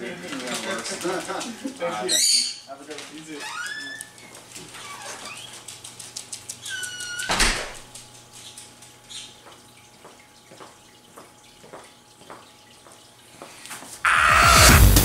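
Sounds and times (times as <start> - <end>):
wooden door shutting: 7.0 - 7.9.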